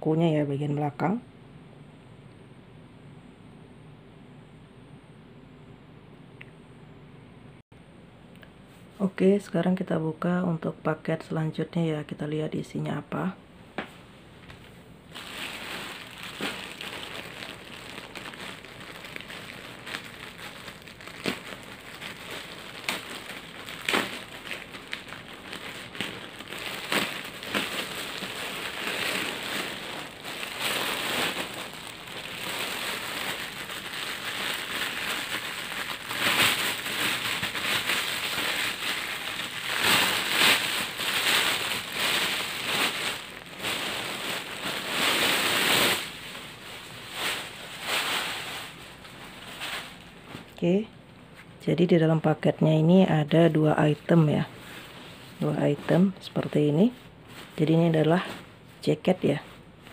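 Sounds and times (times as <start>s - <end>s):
plastic packaging crinkling: 14.5s - 50.6s.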